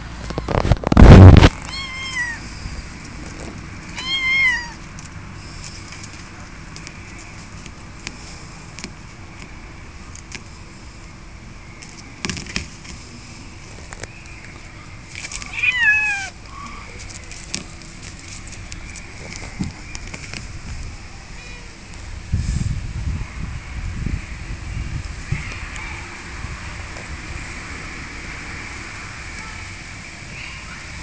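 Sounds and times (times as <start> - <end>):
loud brief burst of noise: 0.8 - 1.6
kitten meowing: 1.6 - 2.5, 3.9 - 4.8, 15.4 - 16.4.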